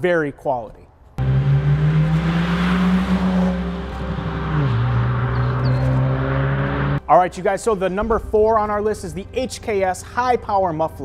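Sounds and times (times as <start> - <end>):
car driving by: 1.2 - 7.0.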